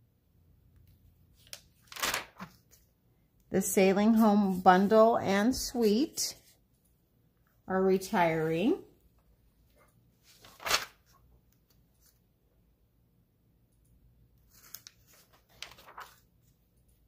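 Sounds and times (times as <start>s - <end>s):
page flap: 1.4s - 2.8s, 10.2s - 12.2s, 14.5s - 16.3s
paper rustling: 1.4s - 2.9s, 9.7s - 12.2s, 14.4s - 17.0s.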